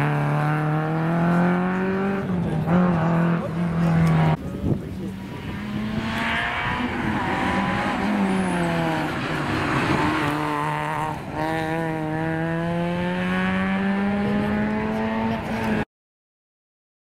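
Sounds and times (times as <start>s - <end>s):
rally car engine: 0.0s - 15.8s.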